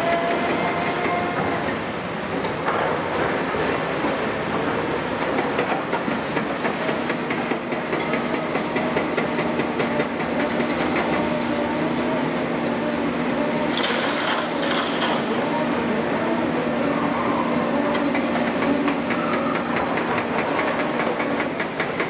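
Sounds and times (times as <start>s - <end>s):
diesel machinery droning: 8.6s - 21.9s.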